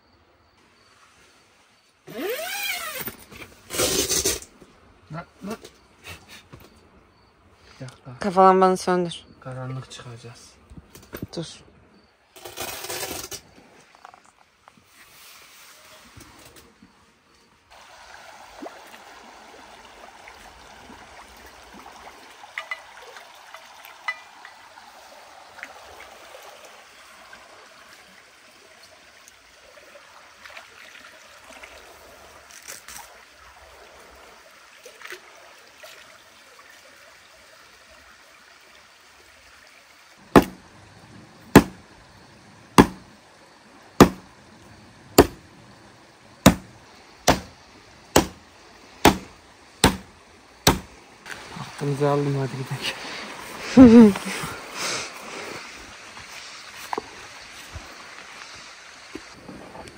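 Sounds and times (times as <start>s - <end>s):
creek rushing: 17.7s - 59.9s.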